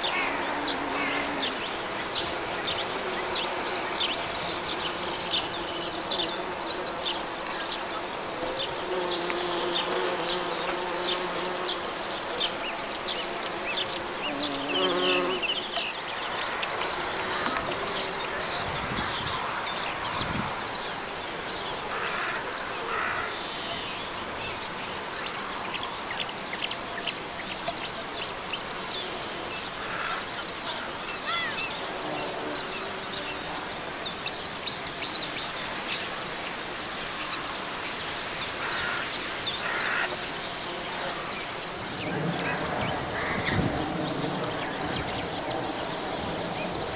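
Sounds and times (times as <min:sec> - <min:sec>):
bees buzzing: 0:00.0 - 0:23.4, 0:31.8 - 0:46.9.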